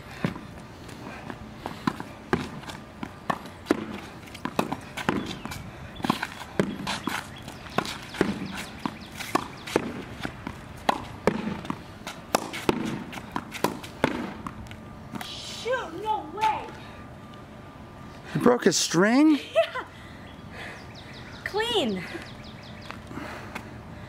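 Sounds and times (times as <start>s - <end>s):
ball bouncing on pavement: 1.2s - 15.4s
racket striking tennis ball: 1.8s - 14.6s
ball hitting backboard: 10.9s - 14.5s.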